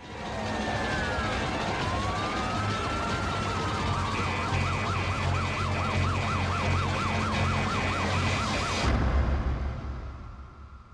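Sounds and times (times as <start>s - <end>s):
electronic siren yelping: 0.3s - 8.9s
low rumble: 8.8s - 10.9s.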